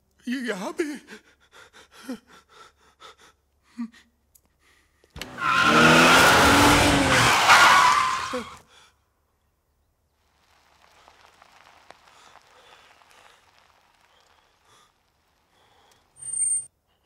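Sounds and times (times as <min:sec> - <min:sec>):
man panting: 0:01.1 - 0:05.1
car engine revving hard: 0:05.2 - 0:07.5
tyres squealing: 0:05.2 - 0:08.6.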